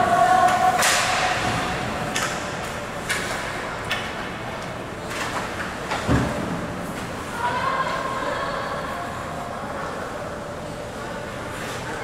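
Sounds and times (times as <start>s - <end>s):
hockey sticks and puck clacking: 0.4s - 4.1s.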